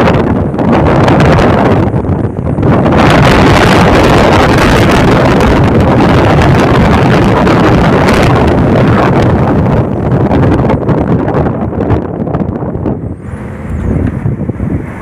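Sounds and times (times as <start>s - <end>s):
road and engine noise: 0.0s - 15.0s
wind rushing over microphone: 0.0s - 15.0s.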